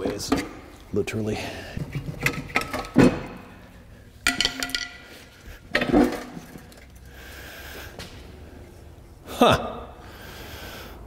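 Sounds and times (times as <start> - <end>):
metal tool clinks and knocks: 4.2 - 7.0.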